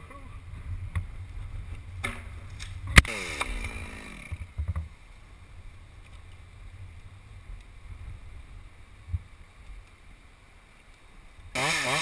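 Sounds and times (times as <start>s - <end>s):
wind buffeting microphone: 0.0s - 3.1s, 4.4s - 9.9s.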